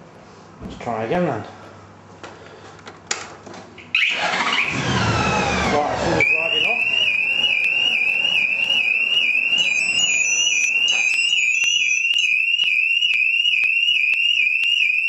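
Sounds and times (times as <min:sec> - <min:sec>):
motorcycle alarm siren: 0:03.9 - 0:15.0
high beeps: 0:06.2 - 0:12.4.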